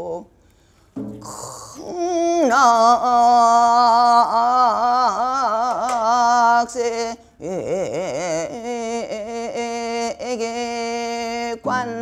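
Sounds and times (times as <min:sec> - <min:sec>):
woman singing long notes: 0:00.0 - 0:00.3, 0:01.2 - 0:12.0
short breath: 0:00.3 - 0:01.8.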